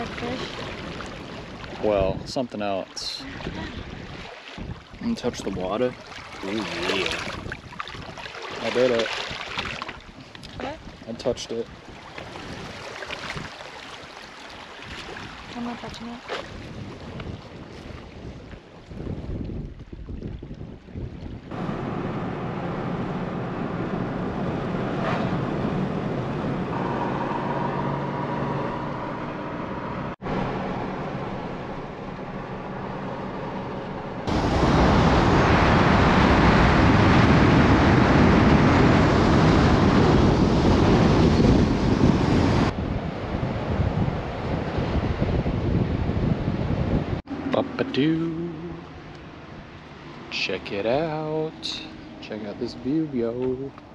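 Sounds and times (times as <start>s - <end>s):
engine and road noise: 0.0s - 2.6s, 21.5s - 53.9s
wind rushing on microphone: 0.0s - 13.6s, 14.8s - 31.9s, 33.4s - 49.8s.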